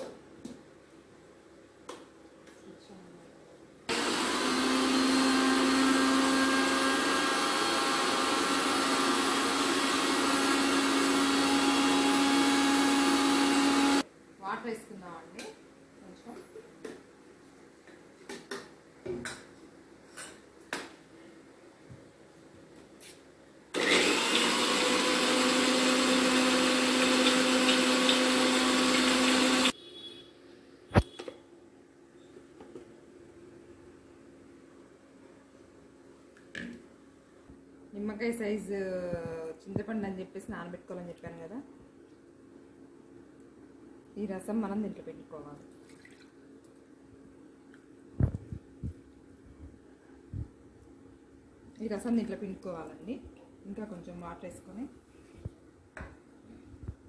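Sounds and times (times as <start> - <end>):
mixer grinder running: 3.9 - 14.0, 23.8 - 29.7.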